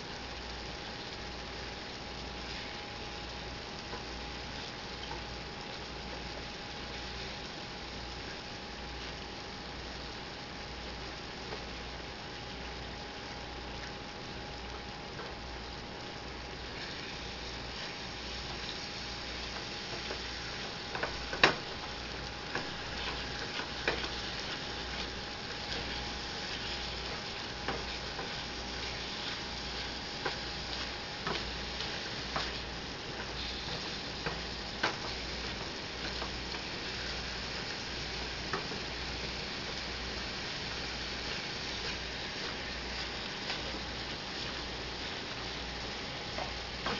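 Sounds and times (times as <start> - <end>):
meat sizzling in a skillet: 0.0 - 46.9
spatula scraping and tapping pan: 22.6 - 25.1.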